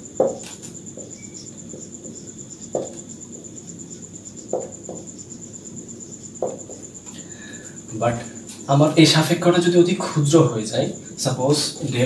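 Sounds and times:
cricket trilling: 0.0s - 12.0s
soft knocks: 0.2s - 3.5s, 4.5s - 5.1s, 6.4s - 6.9s.

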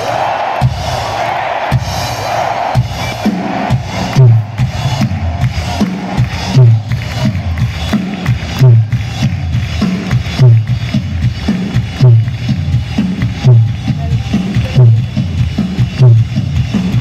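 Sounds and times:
crowd noise: 0.0s - 17.0s.

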